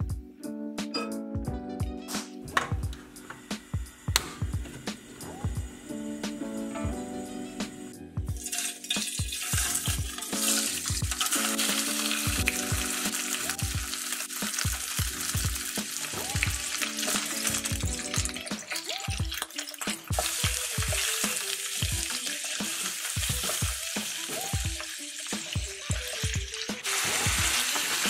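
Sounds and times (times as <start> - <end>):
background music with drum beat: 0.0 - 28.0
meat sizzling in hot oil: 8.4 - 28.0.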